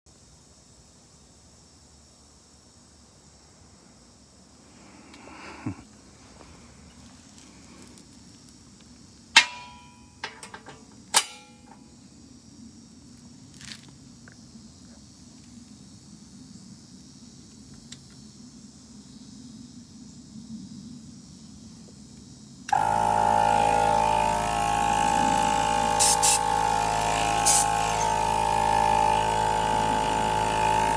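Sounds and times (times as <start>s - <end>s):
sharp ringing clinks: 9.4s - 10.3s
air compressor buzzing hum: 22.7s - 30.9s.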